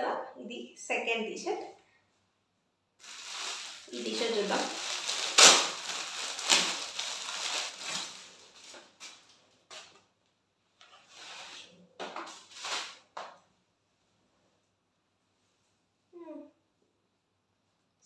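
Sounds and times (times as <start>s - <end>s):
packaging rustling and crinkling: 3.0s - 10.0s, 12.2s - 13.0s
sharp packaging crackle: 3.0s - 10.0s, 12.3s - 13.0s.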